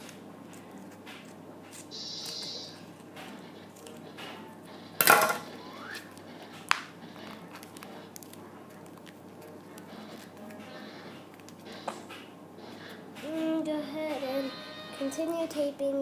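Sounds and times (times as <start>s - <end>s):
paper handling: 6.0s - 12.3s.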